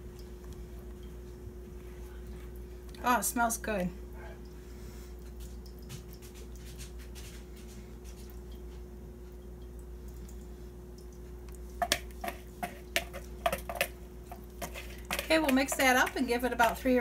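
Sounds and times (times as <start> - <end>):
steady low hum: 0.0 - 17.0
soft squishing: 4.5 - 17.0
whisk knocking against bowl: 11.8 - 16.9.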